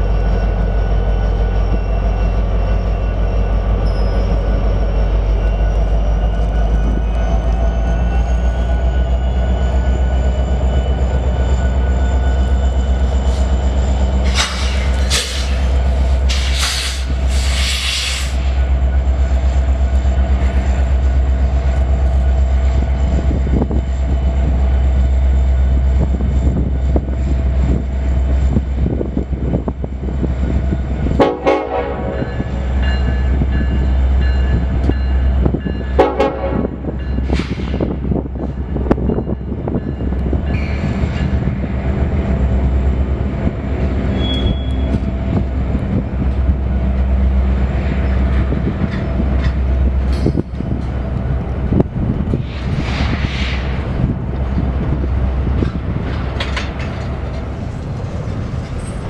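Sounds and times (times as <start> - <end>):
diesel locomotive engine drone: 0.0 - 59.0
train horn blasts: 31.2 - 32.5, 35.9 - 36.9.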